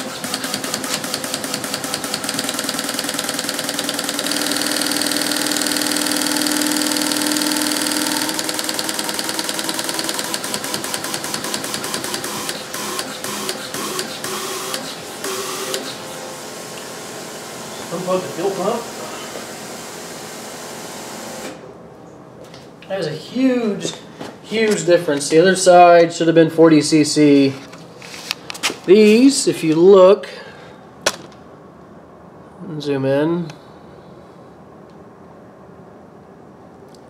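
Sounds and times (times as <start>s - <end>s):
fuel injectors clicking: 0.0s - 14.9s
steady hum: 1.0s - 37.0s.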